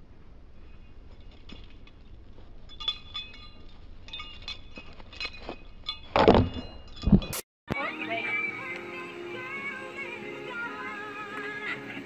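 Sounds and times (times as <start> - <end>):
faint metallic clinks: 0.5 - 7.4.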